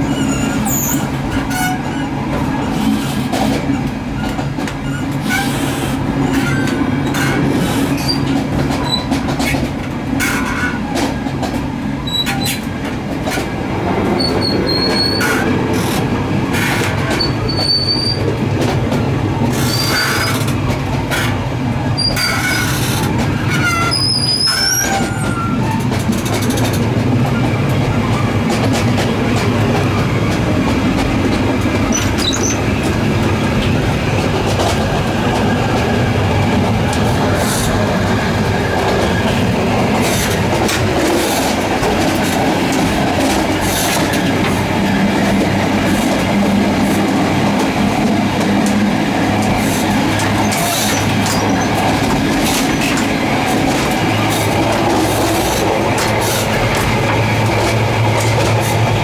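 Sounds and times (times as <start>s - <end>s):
train rumble: 0.0s - 59.0s
high-pitched wheel squeals: 17.1s - 18.2s, 23.5s - 25.8s, 31.9s - 32.6s.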